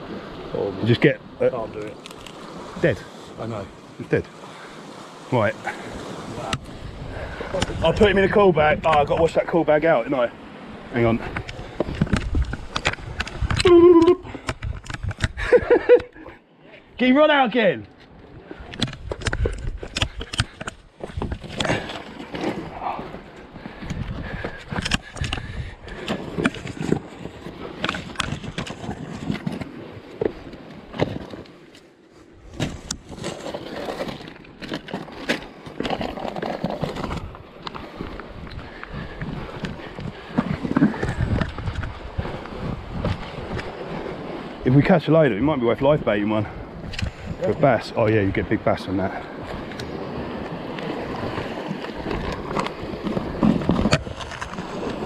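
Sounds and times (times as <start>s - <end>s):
wind on microphone: 5.9s - 9.3s, 10.7s - 16.3s, 18.3s - 21.9s, 22.5s - 30.3s, 35.9s - 44.8s, 45.8s - 55.0s
sea water sloshing against rocks: 49.0s - 55.0s.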